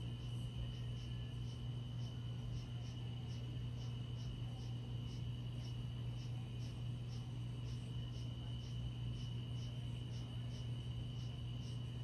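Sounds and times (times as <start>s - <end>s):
insect chirps: 0.0s - 12.0s
insects trilling: 0.0s - 12.0s
steady low hum: 0.0s - 12.0s.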